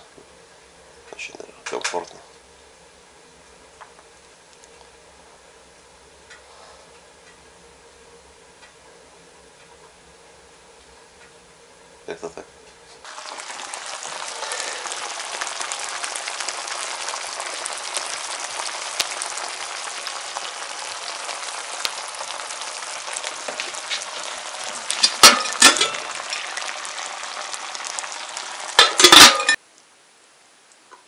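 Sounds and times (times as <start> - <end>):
food sizzling in a pan: 13.0 - 29.6.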